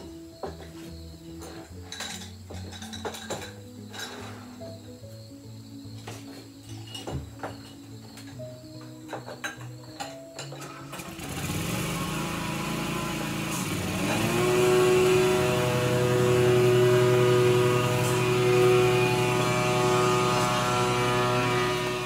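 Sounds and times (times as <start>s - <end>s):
motor drone: 10.9s - 22.0s.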